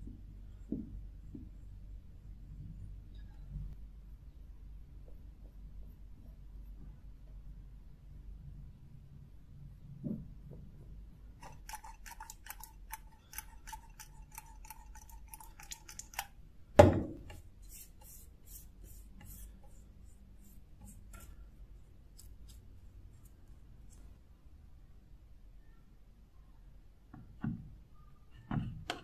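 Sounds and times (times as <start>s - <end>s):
bristle brush strokes: 17.2s - 24.2s
faint steady squeak: 25.5s - 26.8s, 27.9s - 29.0s.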